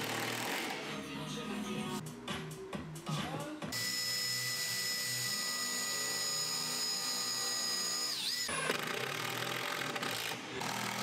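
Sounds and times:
cordless drill whining: 3.8s - 11.0s.

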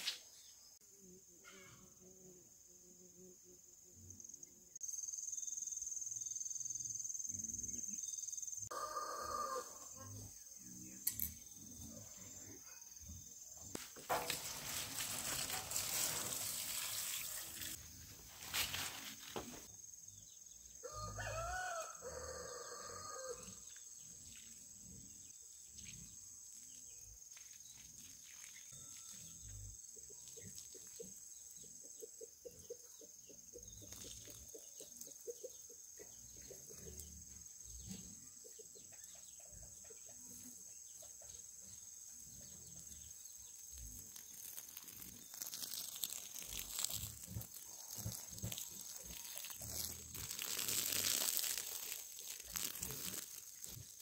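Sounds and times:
rooster crowing: 8.7s - 10.1s, 20.8s - 23.6s
hose water splashing on soil: 13.7s - 19.7s, 27.3s - 29.3s, 33.8s - 34.6s, 43.6s - 54.0s.

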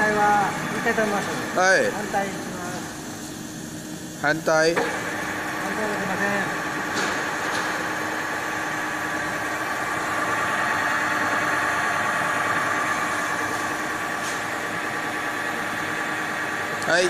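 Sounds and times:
machine humming: 0.0s - 17.0s.

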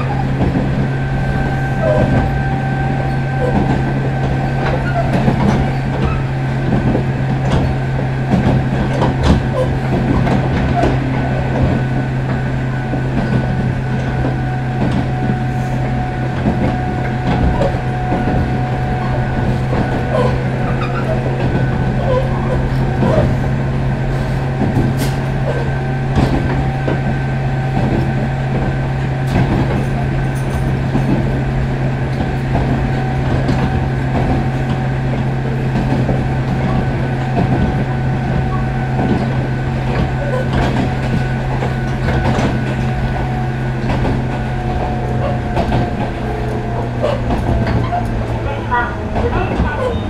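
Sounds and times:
electric train motor hum and whine: 0.0s - 50.0s
wheels clicking over rail joints: 0.0s - 50.0s.

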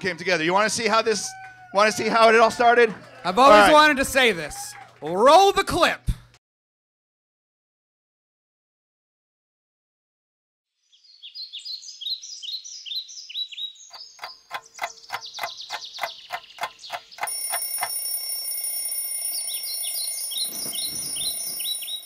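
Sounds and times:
birds chirping: 11.0s - 17.8s, 19.3s - 22.0s
alarm clock beeping rapidly: 16.3s - 22.0s.

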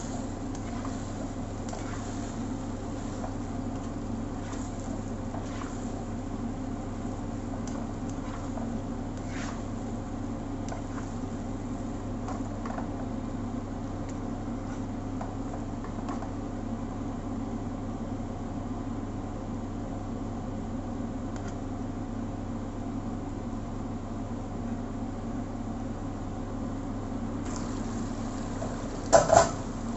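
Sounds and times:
spatula scraping a wok: 0.0s - 6.2s, 7.0s - 10.0s, 10.7s - 11.4s, 28.5s - 29.8s
low mechanical hum: 0.0s - 29.9s.

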